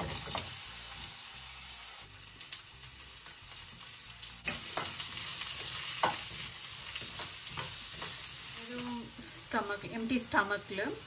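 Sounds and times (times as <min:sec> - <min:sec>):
onions sizzling in oil: 0:00.0 - 0:11.0
spoon scraping a pan: 0:04.4 - 0:08.4.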